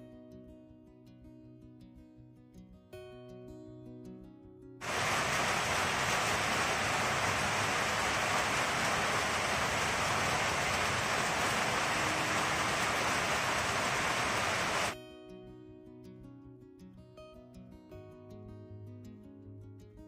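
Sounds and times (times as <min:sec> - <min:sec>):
loud hissing noise: 0:04.8 - 0:15.0.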